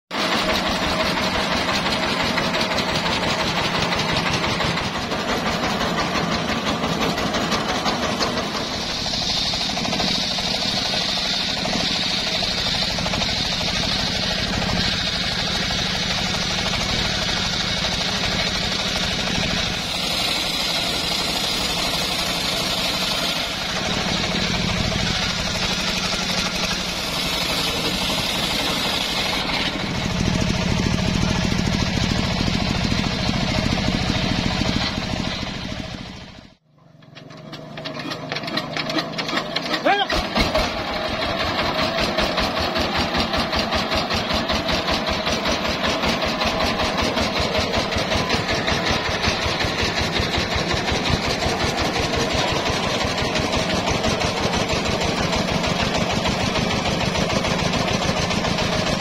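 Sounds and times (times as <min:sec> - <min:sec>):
diesel engine running: 0:00.1 - 0:59.0
circular saw cutting whine: 0:00.3 - 0:36.6.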